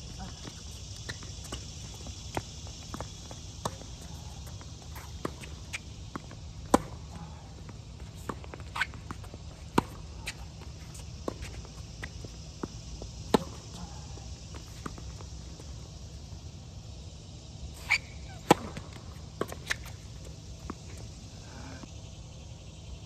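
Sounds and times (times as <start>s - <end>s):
insects droning: 0.0s - 23.0s
tennis ball bouncing: 0.5s - 7.2s, 8.1s - 13.9s
racket hitting tennis ball: 6.6s - 7.1s.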